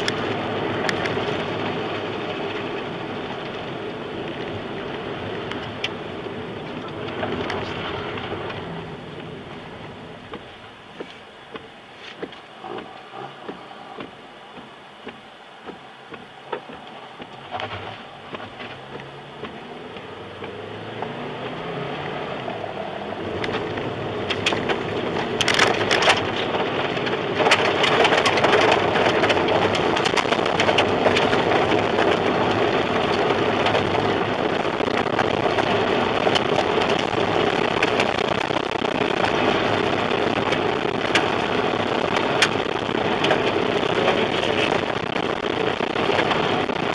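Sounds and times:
debris and rain hitting car: 0:00.0 - 0:46.9
roar of wind and rain: 0:00.0 - 0:46.9
car engine revving: 0:12.5 - 0:46.9.

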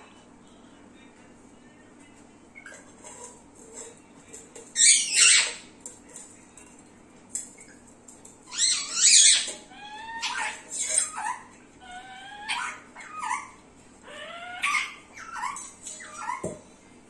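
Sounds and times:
parakeet harsh calls: 0:04.8 - 0:05.7, 0:08.5 - 0:16.4.

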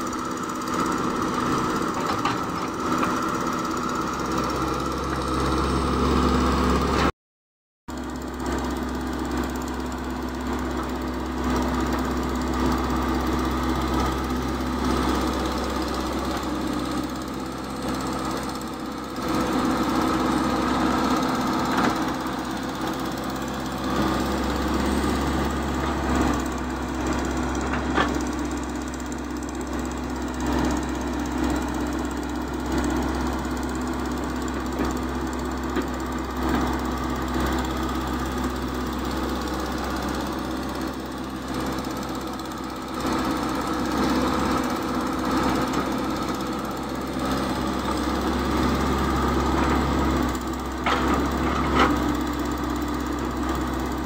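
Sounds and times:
excavator diesel engine running: 0:00.0 - 0:07.1, 0:07.9 - 0:54.0.

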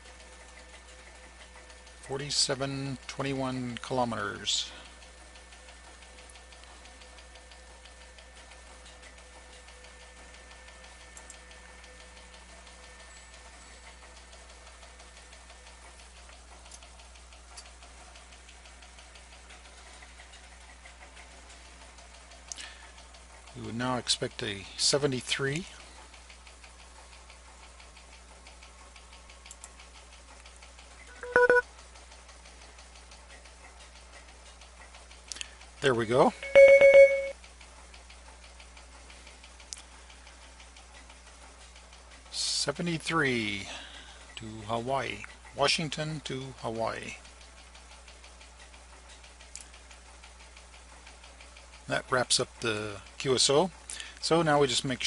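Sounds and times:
faint ticks and crackles: 0:00.0 - 0:36.4, 0:37.4 - 0:55.0
double electronic beep: 0:31.2 - 0:31.6, 0:36.4 - 0:37.3
faint electrical hum: 0:33.8 - 0:55.0.

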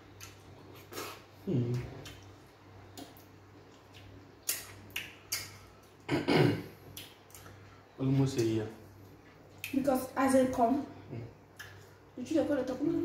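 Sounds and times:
person humming mm: 0:01.0 - 0:02.1
wet mouth clicks and smacks: 0:02.0 - 0:06.1, 0:06.9 - 0:07.6, 0:09.5 - 0:09.8, 0:11.6 - 0:11.9.

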